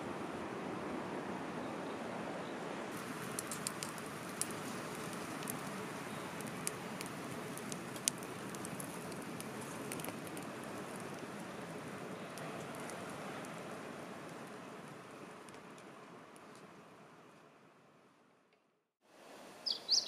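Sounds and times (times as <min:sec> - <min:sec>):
wood fire crackling: 0:02.9 - 0:17.4.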